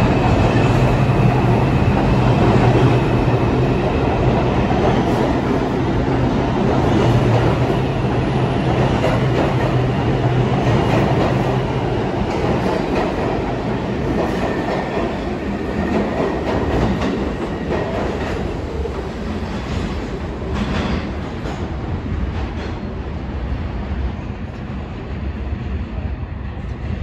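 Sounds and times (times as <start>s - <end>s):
subway train wheels clacking: 0.0s - 27.0s.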